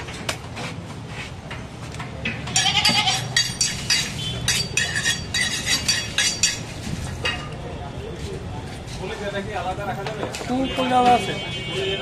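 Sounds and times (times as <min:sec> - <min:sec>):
goat bleating: 0:02.6 - 0:03.4.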